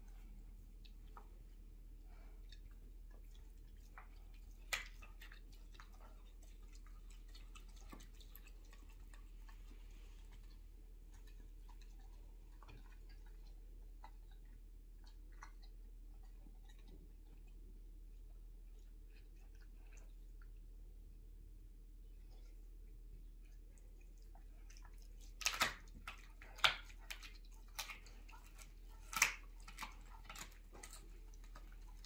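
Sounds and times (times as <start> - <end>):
dog chewing bone: 2.1 - 17.5, 24.0 - 32.0
teeth clicking on bone: 2.5 - 9.7, 10.3 - 17.6, 24.2 - 32.0.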